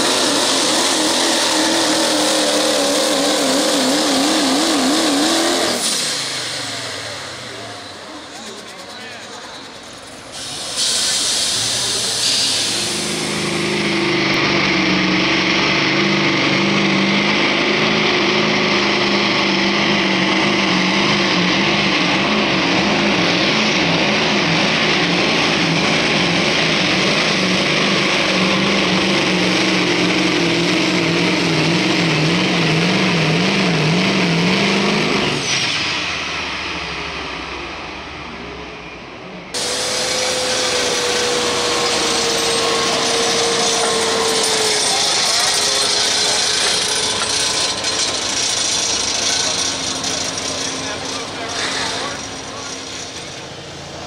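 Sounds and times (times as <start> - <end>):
loud roar with steady whine: 0.0 - 8.4, 11.8 - 54.0
diesel truck engine at full throttle: 0.0 - 54.0
turbo whistle winding down: 39.6 - 50.2.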